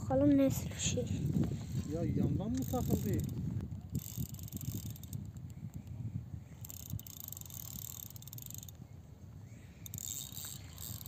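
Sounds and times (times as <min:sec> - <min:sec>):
wind buffeting microphone: 0:00.0 - 0:11.0
insects chirring: 0:09.4 - 0:11.0.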